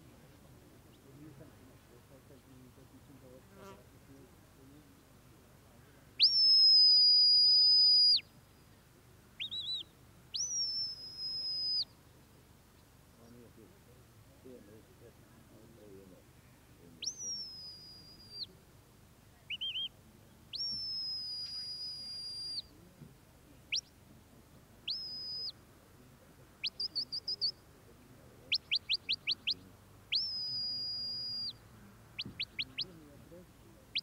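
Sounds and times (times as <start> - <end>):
high whistle commands: 6.2 - 8.2, 10.4 - 11.9, 20.6 - 22.6, 24.9 - 25.5, 30.2 - 31.6.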